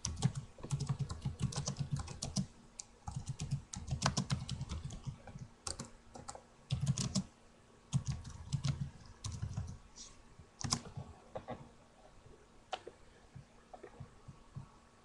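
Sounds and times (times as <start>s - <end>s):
computer keyboard typing: 0.0s - 2.5s, 3.1s - 7.3s, 7.9s - 9.8s, 10.6s - 11.0s.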